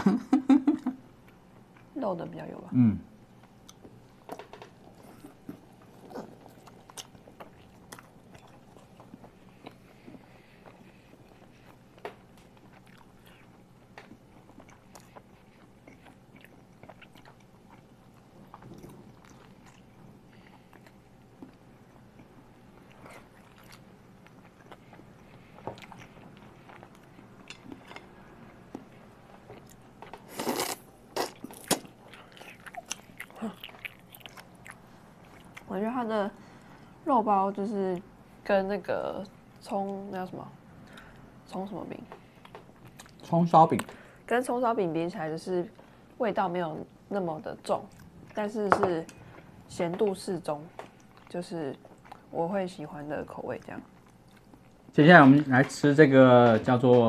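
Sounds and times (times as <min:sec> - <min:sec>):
biting and chewing: 0:12.2 - 0:35.7.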